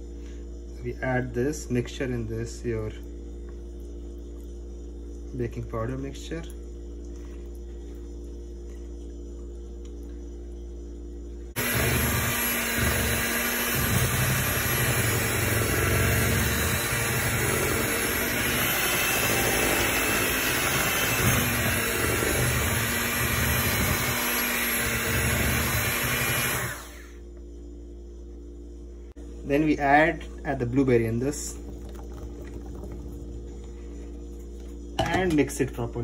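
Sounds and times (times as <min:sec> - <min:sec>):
electric hand mixer running: 0:11.5 - 0:27.2, 0:31.3 - 0:33.8.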